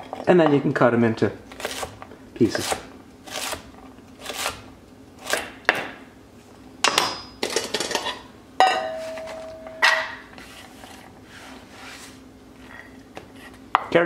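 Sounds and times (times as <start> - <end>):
metal bowl set down ringing: 8.6 - 10.3.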